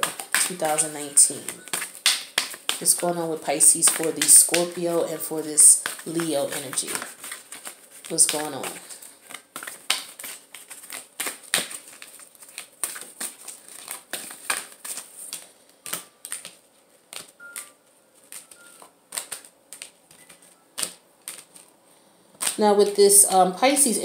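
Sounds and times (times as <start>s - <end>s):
cards being shuffled: 0.0s - 21.8s.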